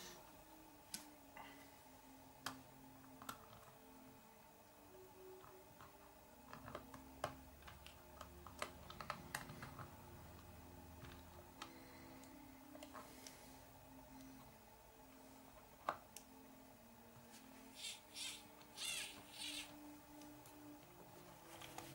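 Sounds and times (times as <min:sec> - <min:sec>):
small parts clicking and tapping: 0:05.4 - 0:13.4.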